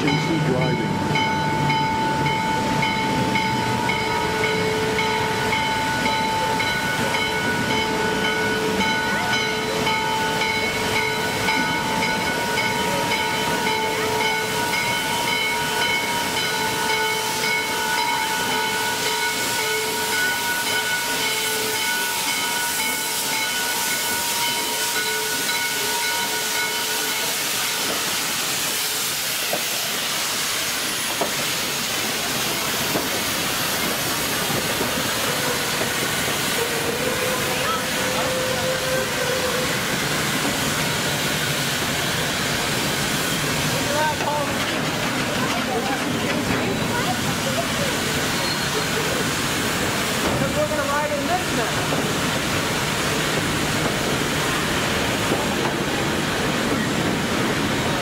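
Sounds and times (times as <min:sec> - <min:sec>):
steam locomotive hissing: 0:00.0 - 0:58.0.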